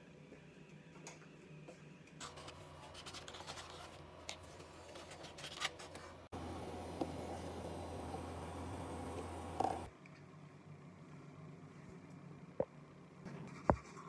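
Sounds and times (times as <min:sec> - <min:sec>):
low hum and hiss: 0:02.2 - 0:13.2.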